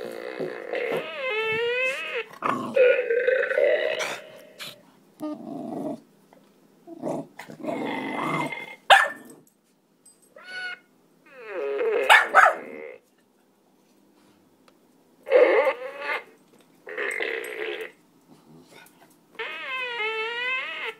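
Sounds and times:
dog growling in play: 0:00.0 - 0:06.1, 0:06.9 - 0:09.4.

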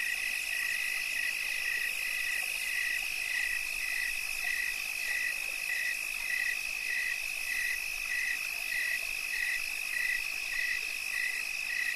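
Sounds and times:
insect pulsing call: 0:00.0 - 0:11.9.

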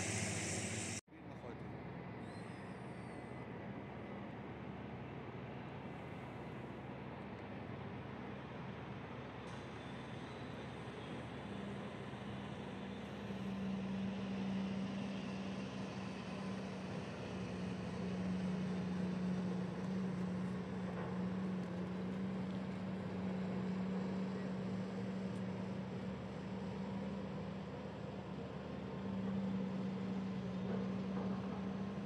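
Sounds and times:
rushing background noise: 0:00.0 - 0:01.0
distant diesel machinery drone: 0:00.0 - 0:32.0.

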